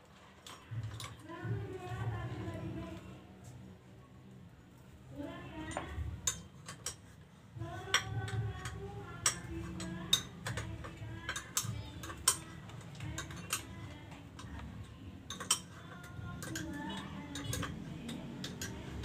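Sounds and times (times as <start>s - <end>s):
metallic clicks and clinks: 7.9s - 19.0s.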